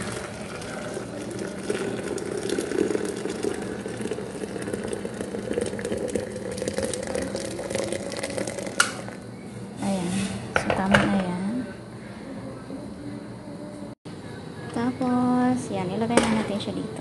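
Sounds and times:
water pouring into a metal pot: 0.0 - 9.2.

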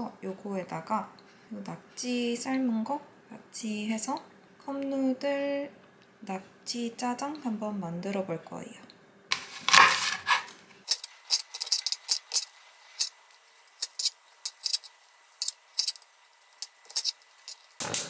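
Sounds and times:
knife chopping on cutting board: 9.3 - 10.5.

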